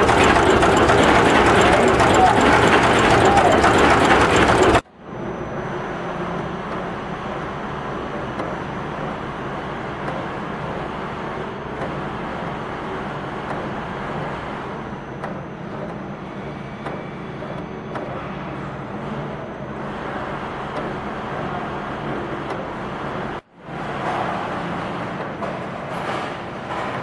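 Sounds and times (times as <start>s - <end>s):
faint irregular machine clicks: 0.0s - 4.8s
machine mechanical din: 0.0s - 27.0s.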